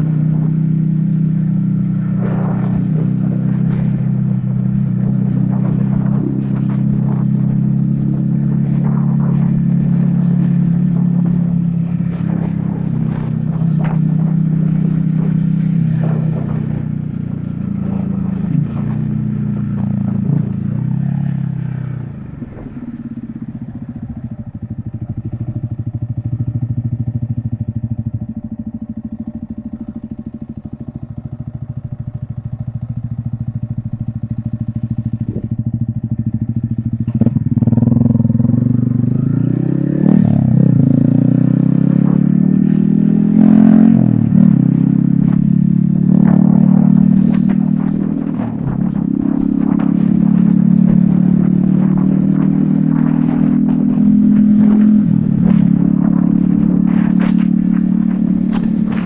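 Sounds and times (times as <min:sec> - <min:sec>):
motorcycle engine riding: 0:00.0 - 0:59.0
motorcycle upshifts: 0:00.0 - 0:59.0.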